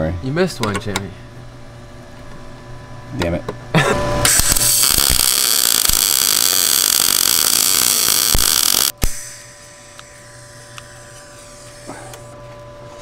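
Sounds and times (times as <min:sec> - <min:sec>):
welder arc crackling: 0:04.2 - 0:12.4.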